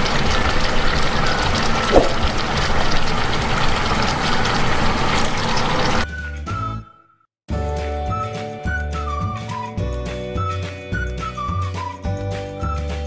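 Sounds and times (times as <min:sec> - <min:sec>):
water bubbling hard in a pot: 0:00.0 - 0:06.0.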